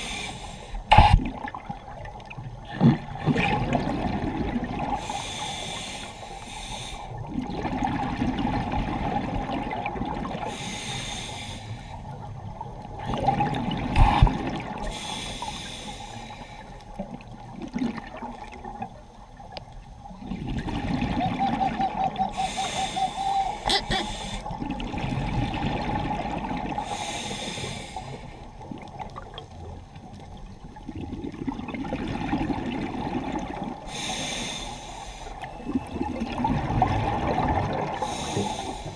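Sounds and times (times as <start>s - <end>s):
scuba regulator breathing hiss: 0.0s - 0.9s, 5.0s - 7.2s, 10.5s - 12.1s, 14.8s - 16.8s, 22.3s - 24.5s, 26.8s - 28.5s, 33.8s - 35.4s, 38.0s - 38.9s
exhaled air bubbling: 0.0s - 5.9s, 7.0s - 10.9s, 12.0s - 38.9s.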